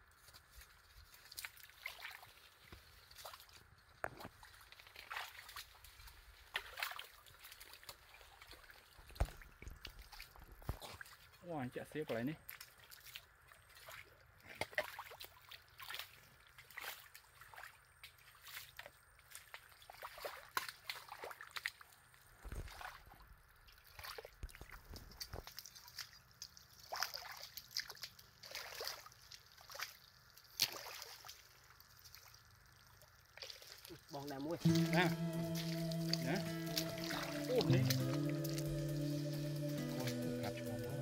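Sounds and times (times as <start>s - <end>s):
mud squelching and water splashing: 0.0s - 41.0s.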